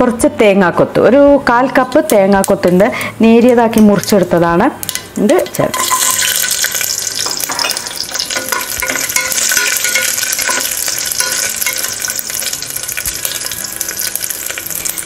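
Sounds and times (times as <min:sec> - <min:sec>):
coconut slices sizzling in oil: 0:02.1 - 0:15.0
spoon scraping pan: 0:04.9 - 0:13.6.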